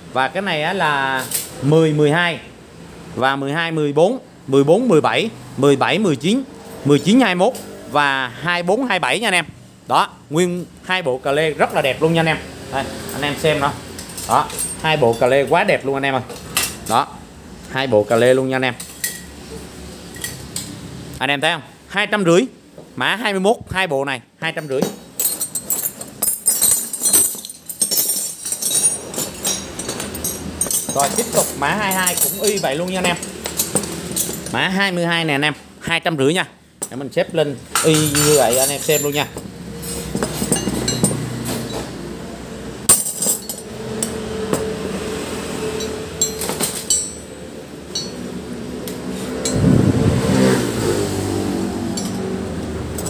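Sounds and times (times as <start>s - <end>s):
metal wrenches clinking together: 1.2s - 1.6s, 13.1s - 17.0s, 18.1s - 19.4s, 20.1s - 20.8s, 24.5s - 34.7s, 37.7s - 42.0s, 42.9s - 44.7s, 45.7s - 48.3s, 51.9s - 53.0s.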